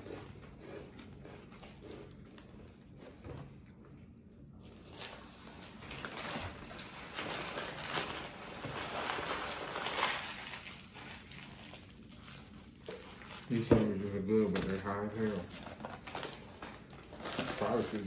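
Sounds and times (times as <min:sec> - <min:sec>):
chewing crunchy potato chips: 0:00.0 - 0:15.3.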